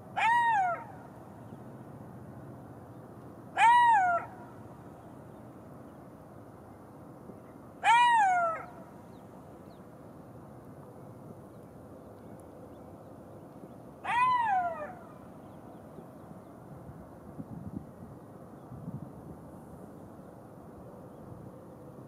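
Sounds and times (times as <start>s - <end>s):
jackal howling: 3.6s - 4.3s, 14.0s - 15.0s.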